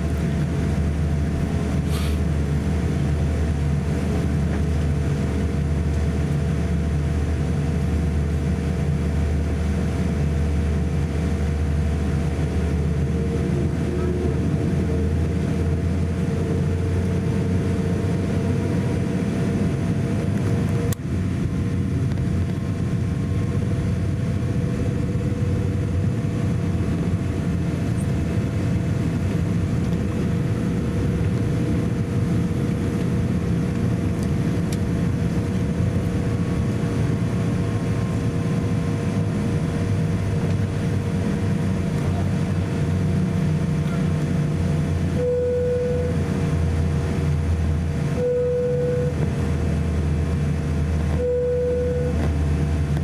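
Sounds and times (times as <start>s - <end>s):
jet engines rumbling: 0.0s - 53.0s.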